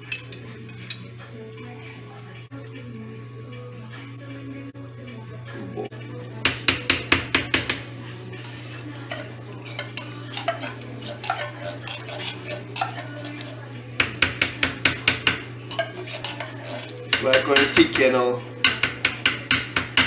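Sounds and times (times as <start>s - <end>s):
spoon tapping metal tin: 6.4s - 7.8s, 14.0s - 20.0s
spoon scraping tin: 8.4s - 18.4s.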